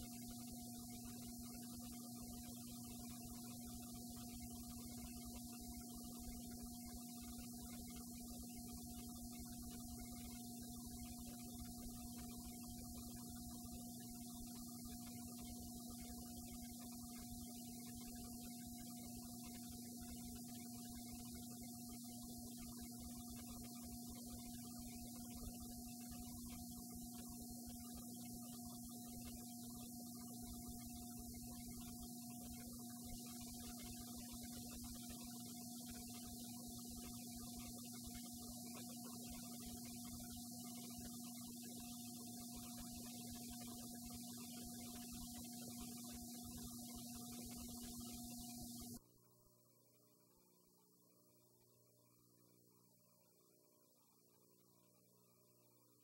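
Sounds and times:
faint electrical mains hum: 0.0s - 56.0s.

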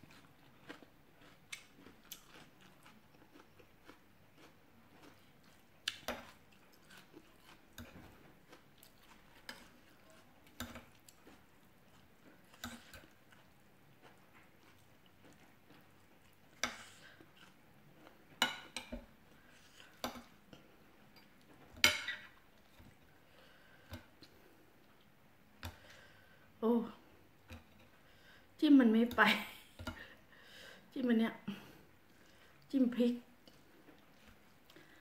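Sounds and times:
quiet chewing: 0.0s - 28.4s, 31.6s - 32.7s, 33.3s - 35.0s
cutlery clinking on plate: 21.8s - 22.2s.

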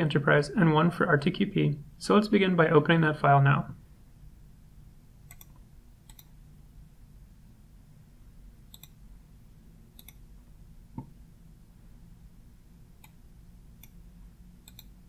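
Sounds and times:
low room hum: 0.0s - 15.0s
computer mouse clicks: 5.2s - 6.4s, 8.7s - 9.0s, 9.9s - 10.3s, 13.0s - 13.2s, 13.8s - 14.0s, 14.6s - 15.0s.

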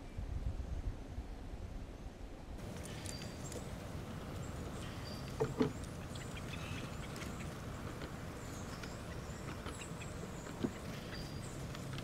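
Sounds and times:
songbirds chipping: 2.0s - 12.0s
steady low rumble: 2.6s - 12.0s.

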